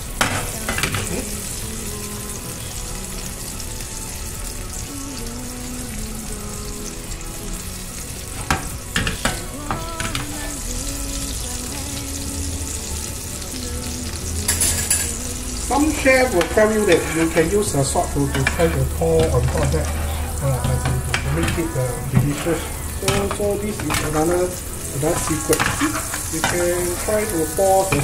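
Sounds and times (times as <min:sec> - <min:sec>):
steak sizzling in a pan: 0:00.0 - 0:28.0.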